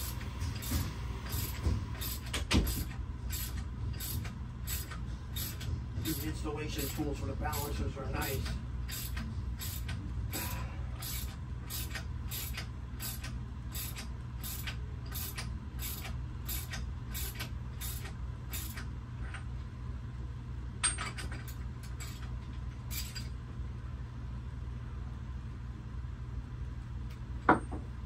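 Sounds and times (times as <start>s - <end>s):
ratchet wrench strokes: 0.0s - 18.9s, 22.9s - 23.3s
steady low hum: 0.0s - 28.0s.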